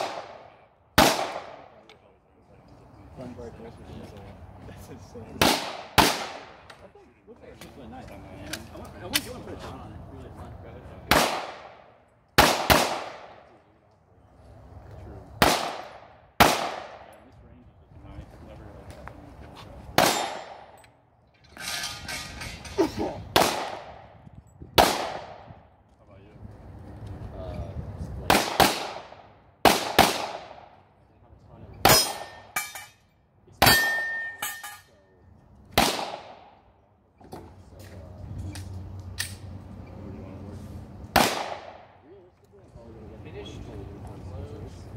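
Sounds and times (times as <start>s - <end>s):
pistol shots echoing: 0.0s - 1.8s, 5.4s - 6.6s, 11.1s - 13.5s, 15.4s - 17.2s, 20.0s - 20.8s, 23.4s - 24.1s, 24.8s - 25.5s, 28.3s - 30.7s, 35.8s - 36.6s, 41.1s - 41.9s.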